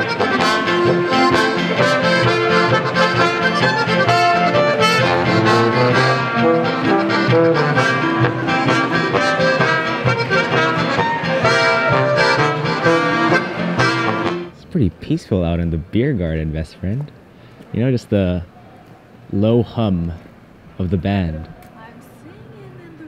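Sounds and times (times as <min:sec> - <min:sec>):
accordion: 0:00.0 - 0:14.6
brass band playing: 0:00.0 - 0:14.6
guitar: 0:00.0 - 0:14.6.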